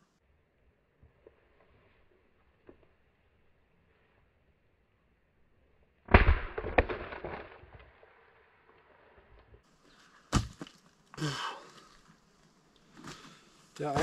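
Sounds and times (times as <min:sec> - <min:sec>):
axe splitting log: 0:10.3 - 0:10.8.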